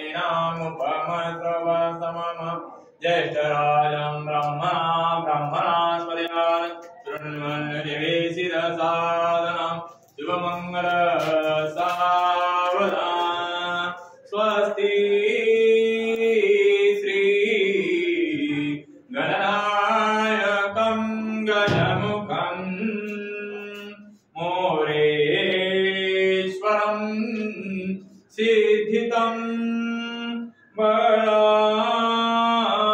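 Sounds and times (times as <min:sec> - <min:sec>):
man chanting melodically: 0:00.0 - 0:32.9.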